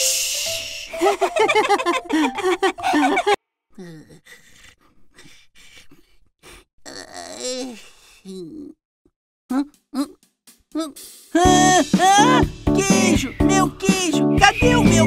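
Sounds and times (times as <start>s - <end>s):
wordless vocal sounds: 0.0s - 1.0s, 9.5s - 15.0s
cartoon voices giggling: 1.0s - 3.4s.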